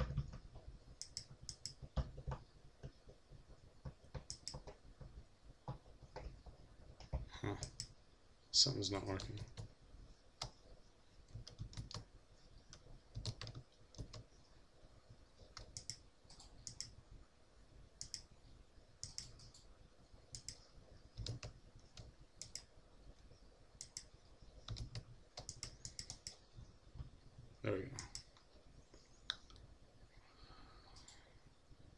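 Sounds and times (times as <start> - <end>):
mouse and keyboard clicking: 1.0 - 3.0, 4.1 - 4.8, 11.3 - 12.1, 12.7 - 14.3, 15.4 - 17.0, 18.0 - 18.3, 19.0 - 19.7, 20.3 - 20.6, 21.2 - 22.7, 23.8 - 26.5.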